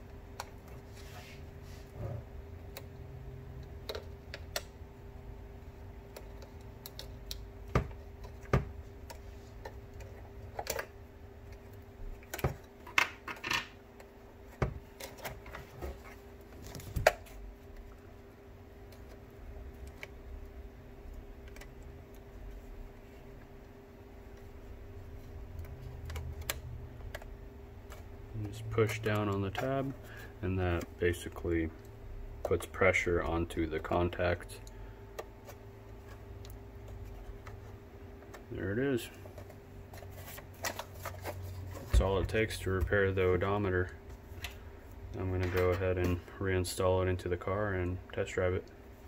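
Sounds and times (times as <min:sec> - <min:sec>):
steady low hum: 0:00.0 - 0:49.0.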